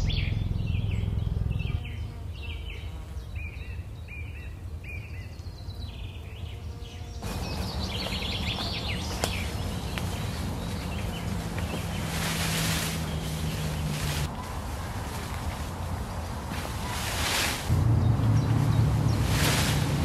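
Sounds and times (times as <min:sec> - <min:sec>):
low rumble: 0:00.0 - 0:02.6, 0:17.7 - 0:20.0
steady low drone: 0:00.0 - 0:02.9, 0:17.7 - 0:20.0
small songbirds chirping: 0:00.0 - 0:20.0
higher bird calls: 0:07.2 - 0:19.9
hiss: 0:16.8 - 0:17.7, 0:19.2 - 0:20.0.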